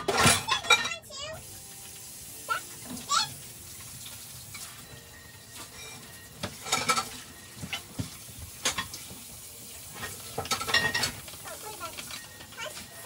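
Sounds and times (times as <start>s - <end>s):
food sizzling in a skillet: 0.9s - 13.0s
pot of rice boiling: 1.1s - 13.0s
sharp crackles and clicks: 9.7s - 13.0s.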